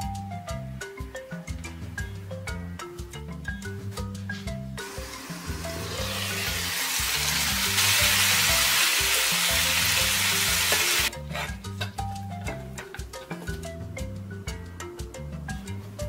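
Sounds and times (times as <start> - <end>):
background music with bass line: 0.0 - 16.0
meat and peppers sizzling in pan: 5.0 - 11.1.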